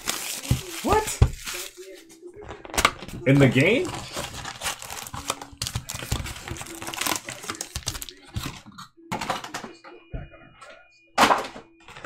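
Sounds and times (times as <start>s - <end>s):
wrapped packs crinkling: 0.0s - 8.6s
cardboard tapping: 2.6s - 8.6s.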